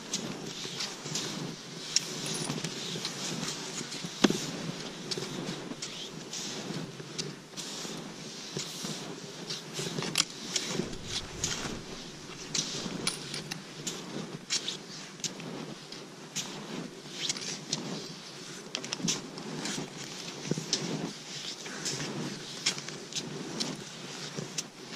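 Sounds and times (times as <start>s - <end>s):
skis shuffling through snow: 0.1s - 13.0s
ski poles planted in snow: 9.5s - 14.0s.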